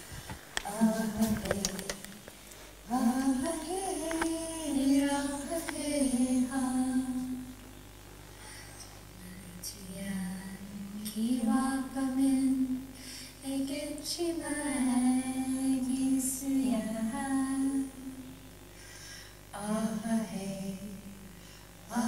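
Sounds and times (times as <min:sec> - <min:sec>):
woman singing over speakers: 0:00.2 - 0:02.2, 0:02.9 - 0:07.5, 0:09.2 - 0:18.2, 0:19.5 - 0:21.0.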